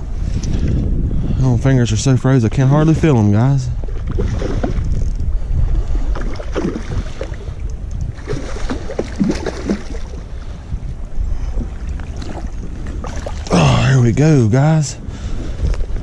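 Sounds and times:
wind buffeting microphone: 0:00.0 - 0:16.0
fish splashing in water: 0:08.2 - 0:10.2.

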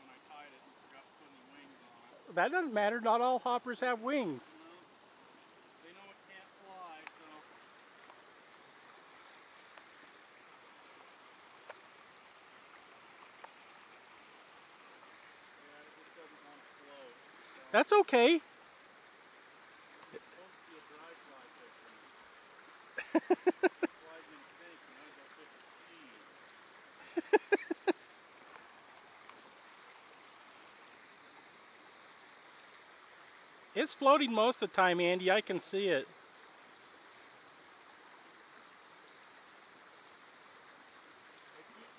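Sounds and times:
creek running over riffles: 0:00.0 - 0:41.9
person's voice: 0:02.3 - 0:04.6, 0:17.8 - 0:18.4, 0:33.8 - 0:36.0
soft ticks: 0:28.5 - 0:29.4.

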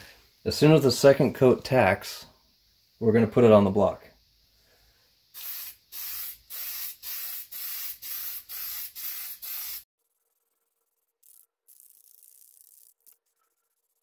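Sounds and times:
aerosol spray hissing bursts: 0:05.3 - 0:09.9.

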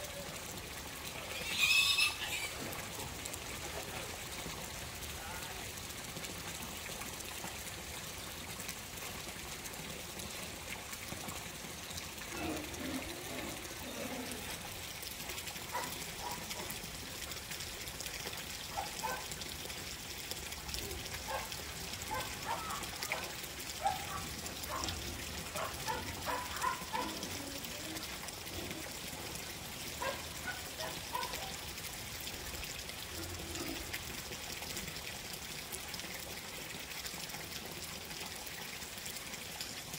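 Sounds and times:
running water: 0:00.0 - 0:39.9
short high calls: 0:01.4 - 0:02.5.

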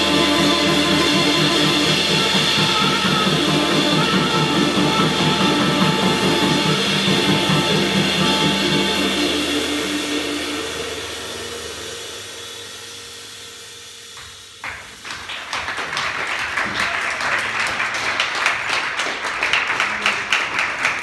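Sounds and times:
jazz chord ringing: 0:00.0 - 0:14.6
audience applause: 0:14.6 - 0:21.0.

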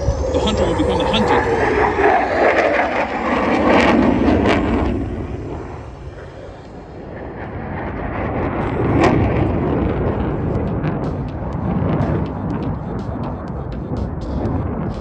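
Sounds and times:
fighter jets overhead: 0:00.0 - 0:15.0.

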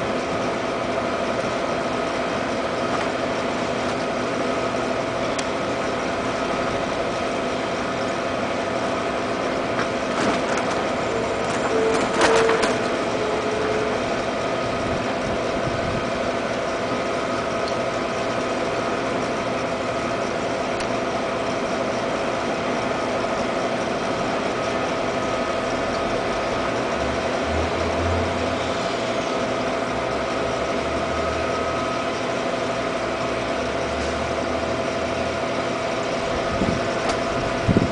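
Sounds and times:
mechanical hum: 0:00.0 - 0:37.9.

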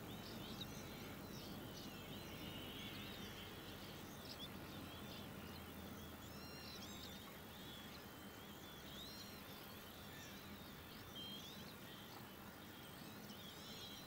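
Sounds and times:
birds chirping: 0:00.0 - 0:14.0
steady background hiss: 0:00.0 - 0:14.0.

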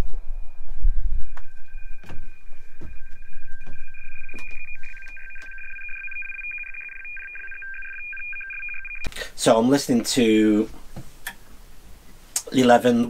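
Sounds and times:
steady high radio tones: 0:00.0 - 0:09.5.

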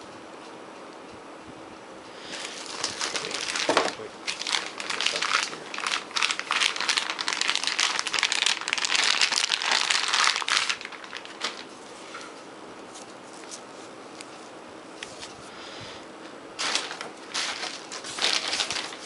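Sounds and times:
plastic wrapping crinkling: 0:02.3 - 0:13.7, 0:16.6 - 0:19.0.

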